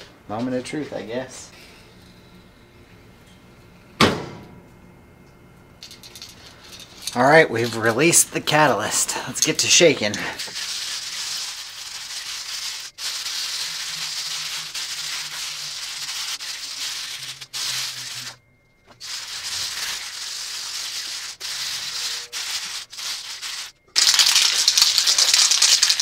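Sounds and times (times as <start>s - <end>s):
aerosol can rattling: 9.4s - 18.4s, 19.0s - 26.0s.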